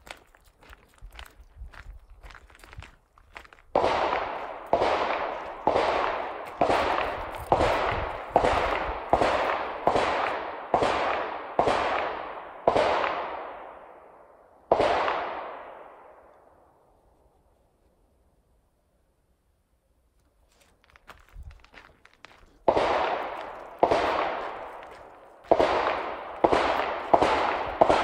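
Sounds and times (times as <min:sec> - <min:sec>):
distant machine-gun fire with echo: 0:03.7 - 0:13.9, 0:14.7 - 0:16.1, 0:22.6 - 0:28.0.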